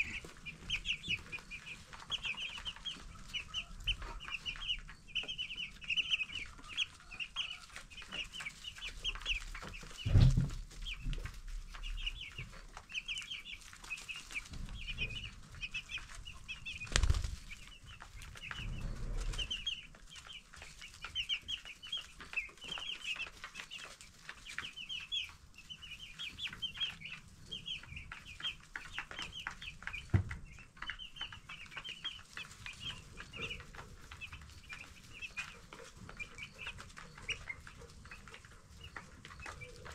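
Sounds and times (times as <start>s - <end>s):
chicks peeping: 0.0s - 39.9s
dull thumps: 10.0s - 10.6s.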